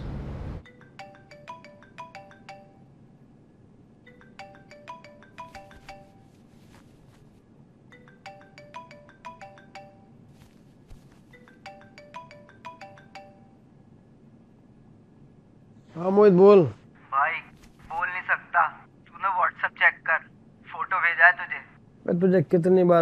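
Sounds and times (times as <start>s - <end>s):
mobile phone ringtone: 0.6s - 3.1s, 4.0s - 7.2s, 7.9s - 13.7s.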